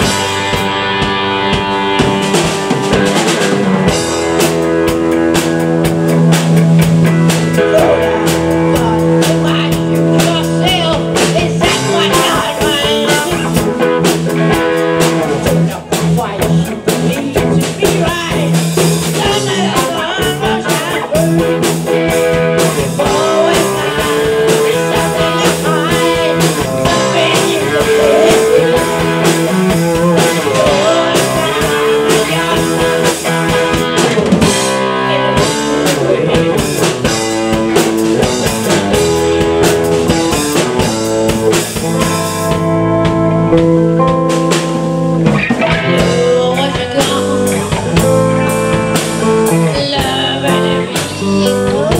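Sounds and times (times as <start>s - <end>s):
drum kit: 0.0s - 51.9s
electric guitars: 0.0s - 51.9s
man singing into microphone: 7.6s - 13.6s, 19.2s - 21.4s, 23.0s - 33.2s, 45.8s - 47.6s, 49.5s - 51.9s.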